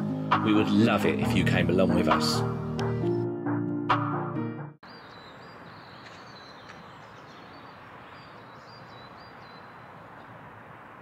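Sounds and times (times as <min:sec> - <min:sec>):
intro music: 0:00.0 - 0:04.8
small birds chirping: 0:04.8 - 0:11.0.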